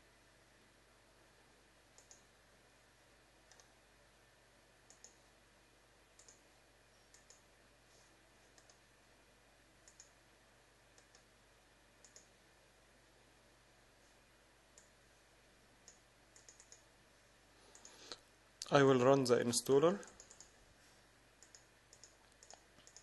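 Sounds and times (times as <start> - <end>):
low steady hiss: 0.0 - 23.0
computer mouse clicks: 2.0 - 2.3, 3.5 - 3.7, 4.9 - 5.2, 6.2 - 6.4, 7.1 - 7.5, 8.5 - 8.8, 9.8 - 10.2, 10.9 - 11.3, 12.0 - 12.3, 15.8 - 16.9, 17.7 - 18.2, 20.0 - 20.6, 21.4 - 23.0.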